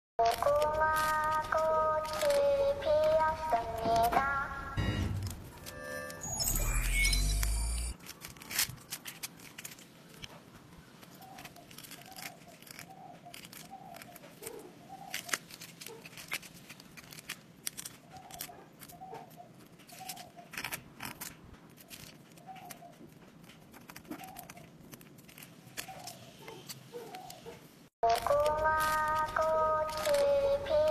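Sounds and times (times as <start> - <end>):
brittle candy cracking: 0.2 - 3.2, 8.0 - 27.4, 28.0 - 30.8
loud low sound: 4.8 - 8.0.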